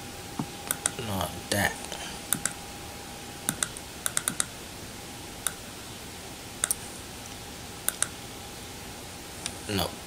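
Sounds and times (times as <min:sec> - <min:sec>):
faint steady hum: 0:00.0 - 0:10.0
keyboard and mouse clicks: 0:02.3 - 0:02.6, 0:03.5 - 0:04.5, 0:07.9 - 0:08.2.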